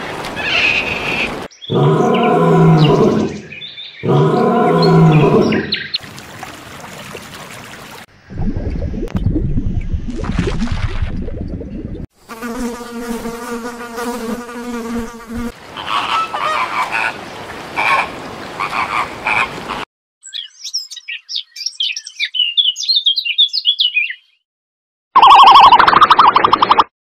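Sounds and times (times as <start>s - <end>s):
flamingos honking: 15.7s - 17.2s, 17.8s - 19.8s.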